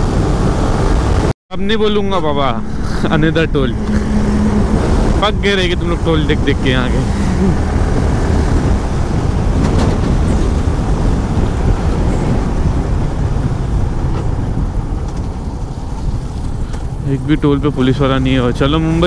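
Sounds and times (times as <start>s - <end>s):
wind and road noise: 0.0s - 19.0s
motorcycle engine running: 2.4s - 14.8s.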